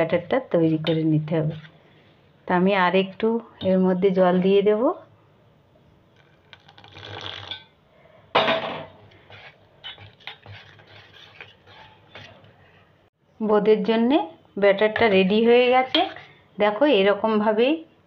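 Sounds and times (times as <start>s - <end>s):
wire whisk beating batter: 9.1s - 12.5s
whisk scraping a steel bowl: 9.1s - 12.6s.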